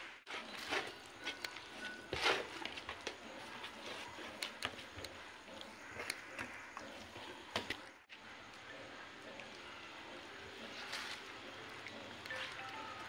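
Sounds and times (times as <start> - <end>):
hands squelching wet paste: 0.3 - 13.0.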